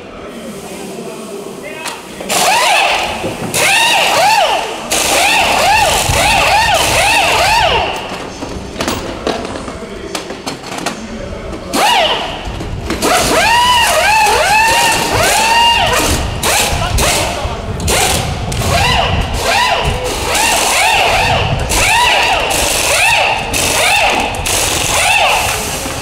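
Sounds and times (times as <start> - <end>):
pneumatic impact wrench bursts: 2.2 - 8.3, 11.7 - 26.0.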